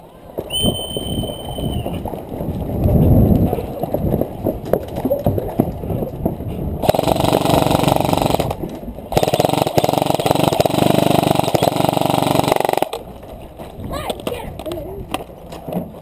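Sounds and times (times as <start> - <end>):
airsoft rifle automatic fire: 6.8 - 13.0.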